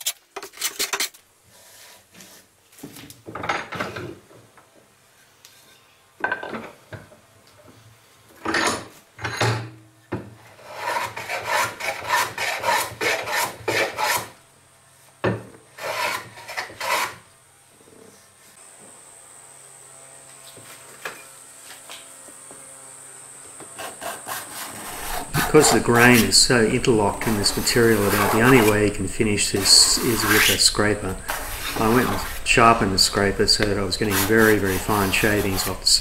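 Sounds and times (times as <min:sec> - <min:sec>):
hand plane shaving wood: 0:10.6 - 0:14.3, 0:15.8 - 0:17.2, 0:23.8 - 0:36.0.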